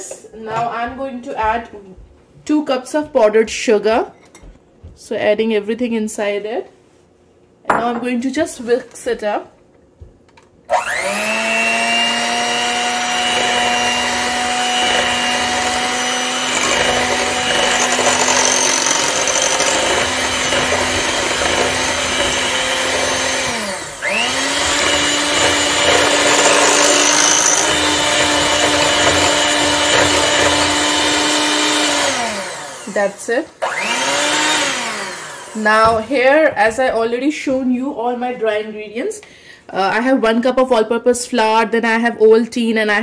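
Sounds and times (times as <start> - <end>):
electric hand mixer whine: 10.7 - 36.2.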